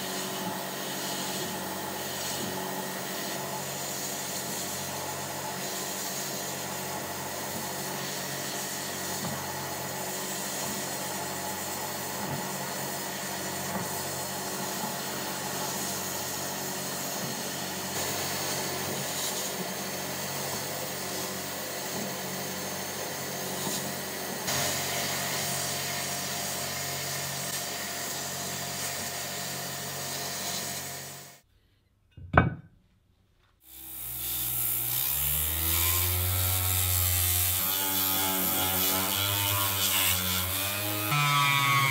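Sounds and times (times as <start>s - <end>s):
sandblasting gun hissing: 0.0s - 4.9s, 5.6s - 6.9s, 12.7s - 28.2s
orbital sander running: 0.0s - 31.4s, 33.6s - 41.9s.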